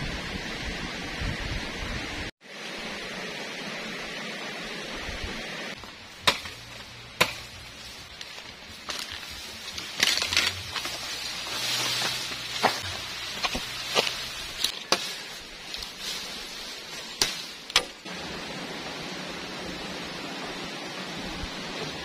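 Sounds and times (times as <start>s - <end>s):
stream rushing: 0.0s - 22.0s
bamboo leaves rustling: 5.7s - 18.2s
chopping knocks on bamboo: 6.2s - 6.6s, 7.2s - 7.5s.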